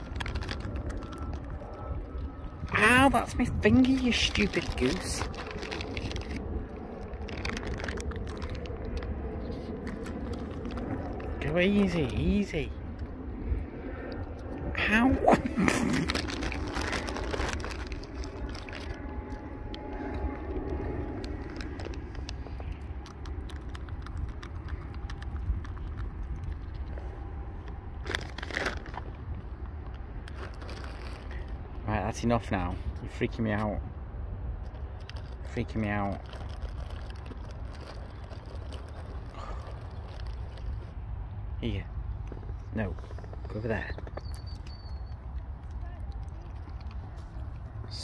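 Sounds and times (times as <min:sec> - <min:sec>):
goose bill clicking and crunching: 0:00.0 - 0:48.0
steady low rumble: 0:00.0 - 0:48.0.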